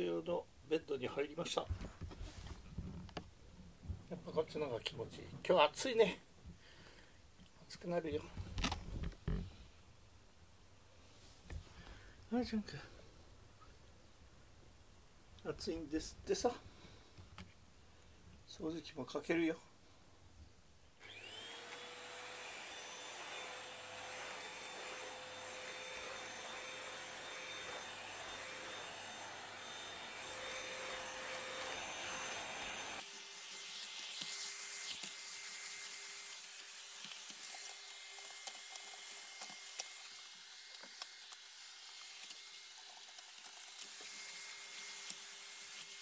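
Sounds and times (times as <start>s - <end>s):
vacuum cleaner motor whine: 21.0s - 33.1s.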